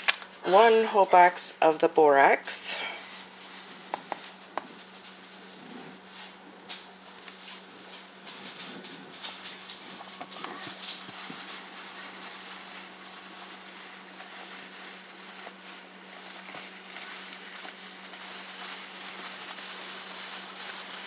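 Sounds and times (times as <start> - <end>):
low electrical hum: 0.0 - 21.0
powder pouring into plastic tub: 9.2 - 21.0.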